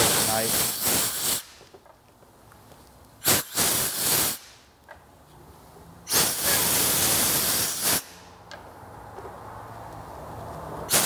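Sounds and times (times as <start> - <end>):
aerosol spray bursts: 0.0 - 1.6, 3.2 - 4.5, 6.1 - 8.2.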